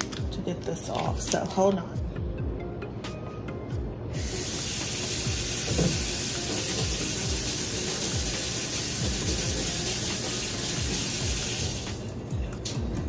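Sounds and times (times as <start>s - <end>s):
faucet running water over bottles: 4.2s - 12.2s.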